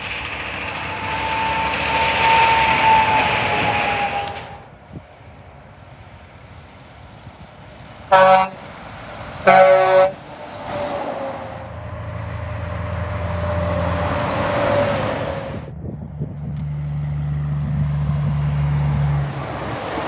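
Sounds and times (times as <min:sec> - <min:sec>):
truck passing by: 0:00.0 - 0:20.0
truck air horn blasts: 0:08.1 - 0:08.7, 0:09.4 - 0:10.4.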